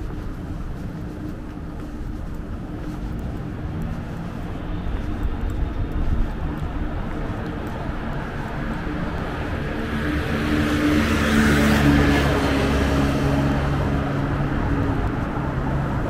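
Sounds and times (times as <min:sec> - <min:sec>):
traffic hum: 0:00.0 - 0:16.0
vehicle passing by: 0:08.3 - 0:16.0.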